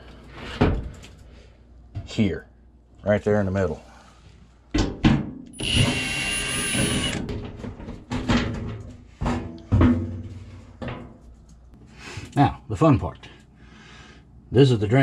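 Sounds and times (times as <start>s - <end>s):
cordless drill whirring: 5.6s - 7.2s.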